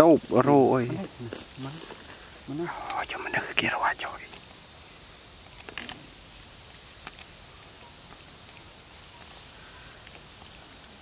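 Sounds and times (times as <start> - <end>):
rustling in grass: 0.0 - 11.0
steady outdoor hiss: 0.0 - 11.0.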